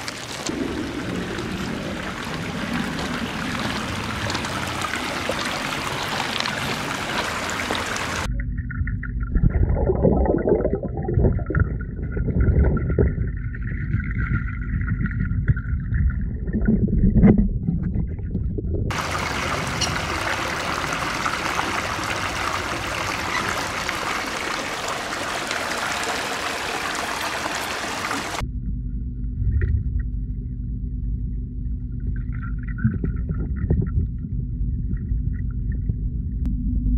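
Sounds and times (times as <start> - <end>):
running water: 0.0 - 8.3, 9.3 - 28.4
muffled underwater rumble and gurgle: 0.0 - 25.7, 28.0 - 36.9.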